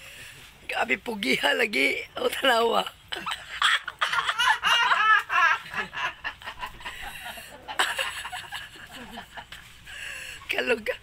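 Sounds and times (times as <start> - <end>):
person laughing: 3.1 - 9.7.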